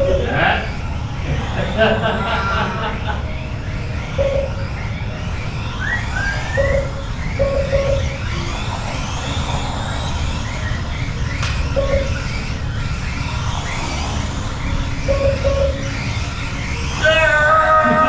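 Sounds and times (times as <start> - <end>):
small electric motors whining: 0.0 - 18.0
short electronic beeps: 4.0 - 5.0, 5.8 - 8.3, 10.6 - 12.4, 15.0 - 16.0.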